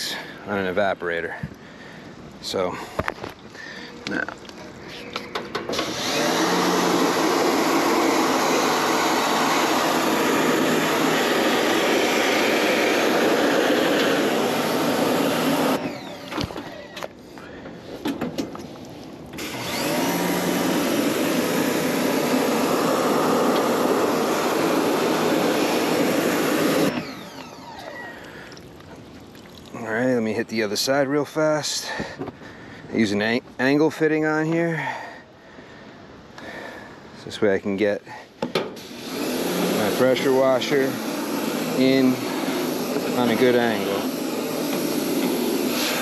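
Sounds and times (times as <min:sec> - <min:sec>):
pressure washer spraying water: 0:05.7 - 0:16.5, 0:19.4 - 0:28.0, 0:38.8 - 0:46.0.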